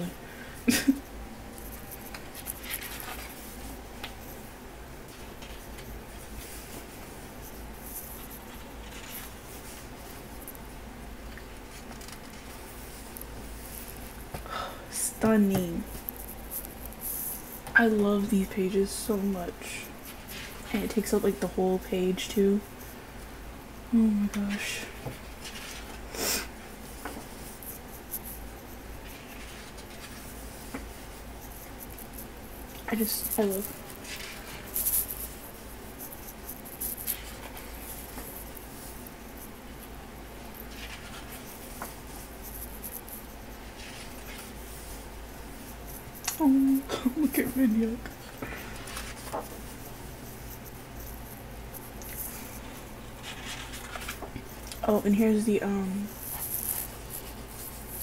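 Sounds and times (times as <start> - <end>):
paper pages rustling: 1.6 - 4.3, 7.8 - 10.5, 11.7 - 13.0, 20.0 - 21.1, 24.4 - 26.0, 29.0 - 39.0, 40.6 - 45.0, 45.9 - 51.3, 52.1 - 54.8
book page turning: 48.8 - 49.7, 53.2 - 54.3.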